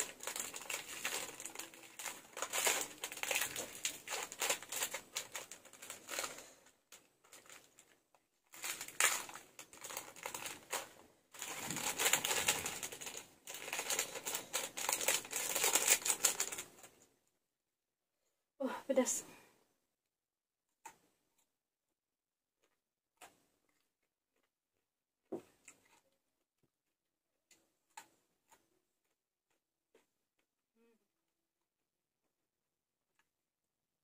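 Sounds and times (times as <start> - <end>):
plastic sachet crinkling: 0.0 - 17.0.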